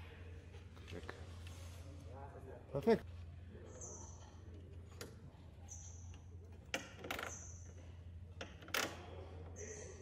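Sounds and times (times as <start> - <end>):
steady low hum: 0.0 - 6.7.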